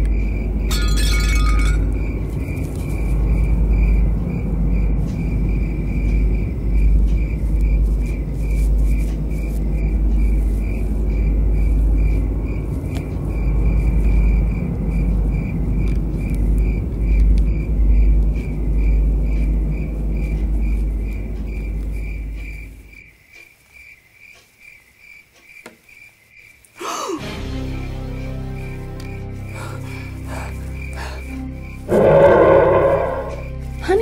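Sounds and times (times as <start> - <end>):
deep steady rumble: 0.0 - 22.9, 29.8 - 34.0
crickets chirping: 0.0 - 34.0.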